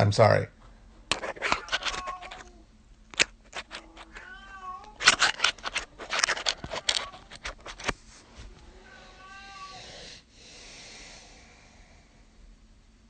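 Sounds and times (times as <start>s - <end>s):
rustling: 1.1s - 2.6s, 3.2s - 9.2s
cat meowing: 1.5s - 2.6s, 3.8s - 5.2s, 8.7s - 10.0s.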